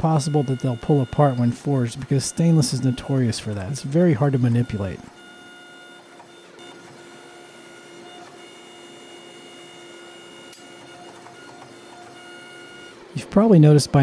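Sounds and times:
forging press motor hum: 0.0 - 13.2.

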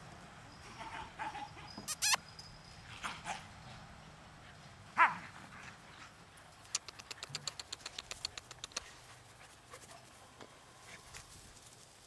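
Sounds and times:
faint short puppy calls: 1.8 - 2.2
puppy yelping: 1.9 - 2.2.

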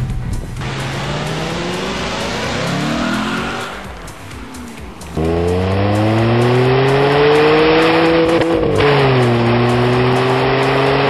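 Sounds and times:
car engine revving at exhaust: 0.5 - 11.0.

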